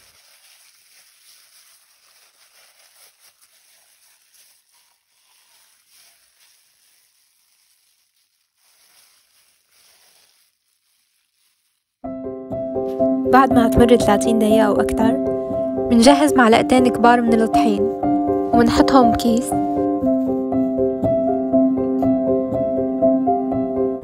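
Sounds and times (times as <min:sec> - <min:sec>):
plastic bag crinkling: 0:00.0 - 0:12.1, 0:16.0 - 0:20.4.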